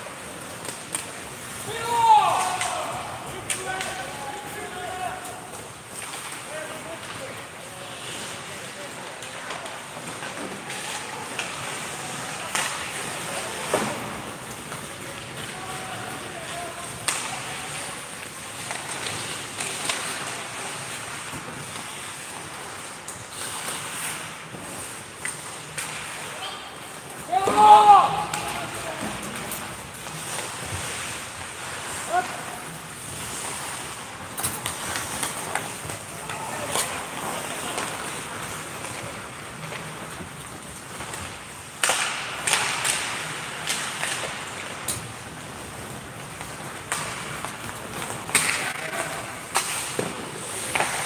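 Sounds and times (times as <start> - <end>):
arena noise: 0.0 - 51.0
hockey sticks and puck clacking: 0.0 - 51.0
skates on ice: 0.0 - 51.0
puck hitting boards: 9.5 - 17.9, 27.2 - 30.9, 41.0 - 45.1, 46.3 - 51.0.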